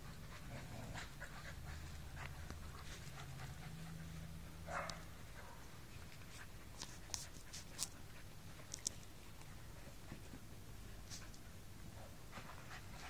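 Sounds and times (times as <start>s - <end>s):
puppies panting and scuffling: 0.0s - 13.0s.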